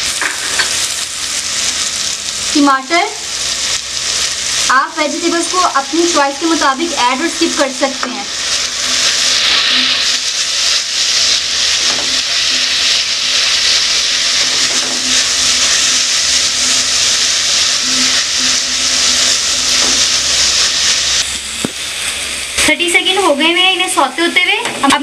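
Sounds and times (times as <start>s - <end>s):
vegetables sizzling in hot oil: 0.0s - 25.0s.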